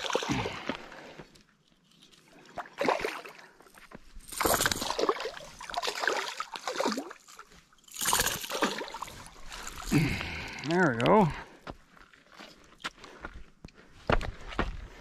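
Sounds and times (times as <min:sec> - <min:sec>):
fish splashing in water: 0:04.3 - 0:09.9.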